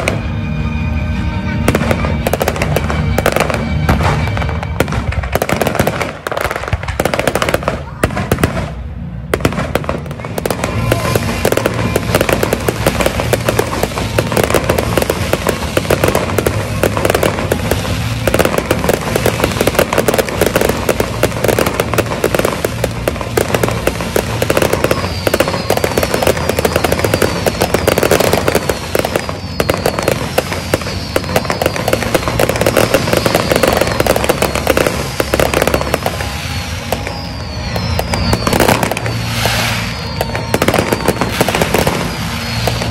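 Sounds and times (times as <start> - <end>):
fireworks crackling and popping: 0.0 - 0.6, 1.2 - 42.9
music playing: 0.0 - 42.9
falling firework whistles: 9.4 - 42.9.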